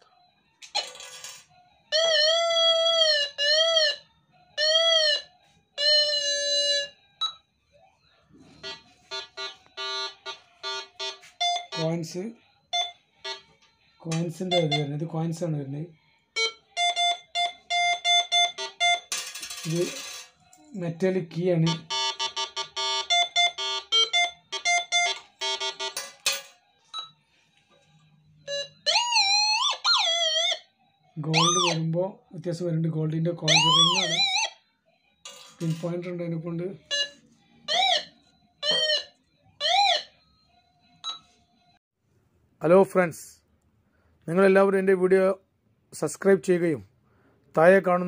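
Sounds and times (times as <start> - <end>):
metal detector beeping: 8.6 - 12.1, 14.0 - 15.0
metal detector tones: 14.1 - 15.0.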